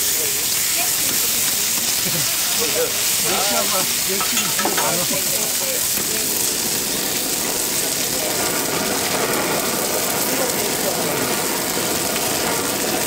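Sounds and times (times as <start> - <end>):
gas torch hissing: 0.0 - 13.0
meat sizzling on griddle: 0.0 - 13.0.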